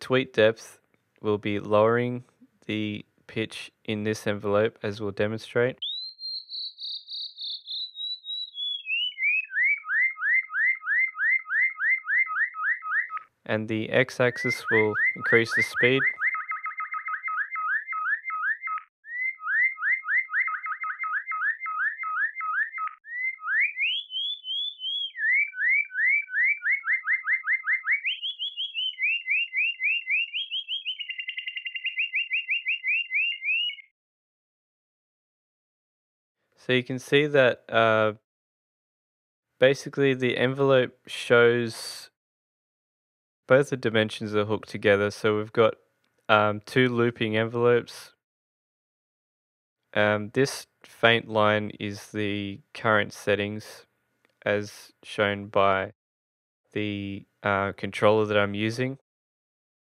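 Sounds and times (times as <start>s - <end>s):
synthesized bird chirps: 5.8s - 13.3s, 13.9s - 33.9s.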